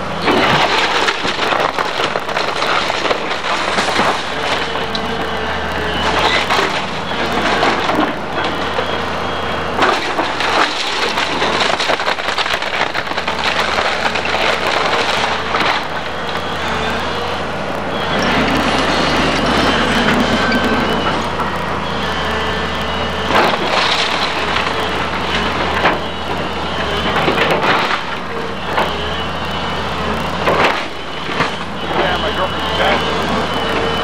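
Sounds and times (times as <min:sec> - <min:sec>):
excavator engine running: 0:00.0 - 0:34.0
debris crashing down: 0:00.2 - 0:05.0, 0:09.8 - 0:16.6, 0:23.3 - 0:28.9
timber cracking and splintering: 0:00.2 - 0:09.0, 0:09.8 - 0:17.1, 0:22.8 - 0:34.0.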